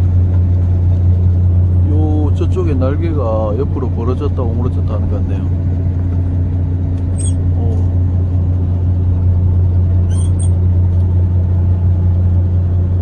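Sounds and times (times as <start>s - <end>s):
boat engine droning: 0.0s - 13.0s.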